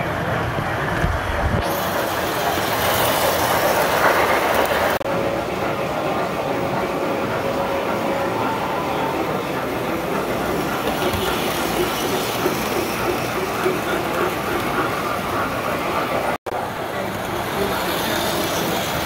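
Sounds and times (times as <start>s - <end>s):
toy train wheels rattling on rails: 9.1s - 16.2s, 17.0s - 19.0s.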